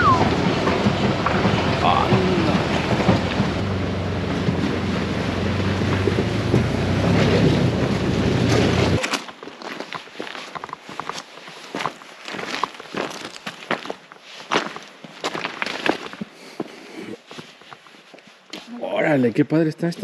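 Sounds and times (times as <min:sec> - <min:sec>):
vehicle engine running: 0:00.0 - 0:09.0
tyres rolling over gravel: 0:00.0 - 0:16.3
footsteps crunching on stones: 0:08.5 - 0:18.7.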